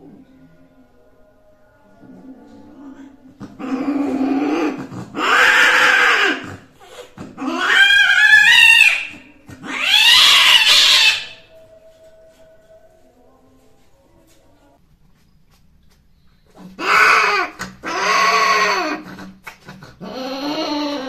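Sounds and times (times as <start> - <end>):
cats yowling: 2.5 - 6.6, 7.2 - 11.6, 16.6 - 21.0.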